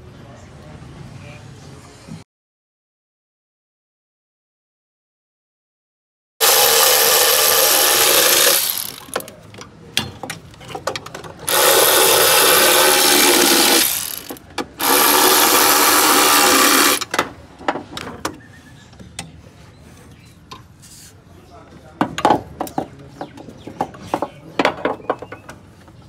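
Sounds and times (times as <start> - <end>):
impact wrench hammering: 6.4 - 9.3, 11.5 - 17.2.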